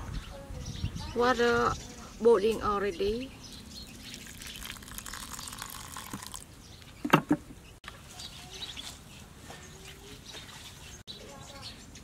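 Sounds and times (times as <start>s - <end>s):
birds chirping: 0.0s - 12.0s
hot water pouring: 4.1s - 6.4s.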